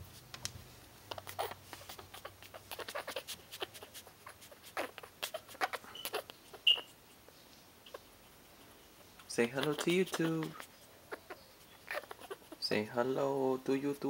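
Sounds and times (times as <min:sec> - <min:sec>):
scratchy rustling and clicking: 0:00.1 - 0:12.7
puppy squeak: 0:01.1 - 0:07.0, 0:09.4 - 0:12.7.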